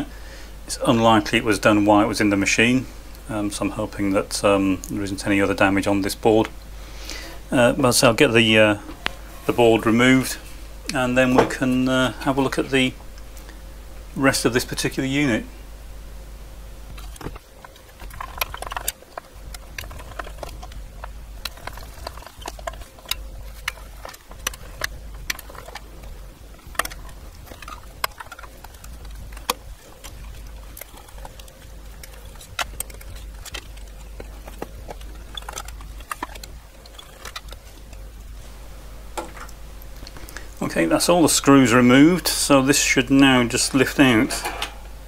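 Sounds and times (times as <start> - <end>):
steady low hum: 0.0 - 45.0
parts being handled: 16.8 - 40.6, 43.2 - 45.0.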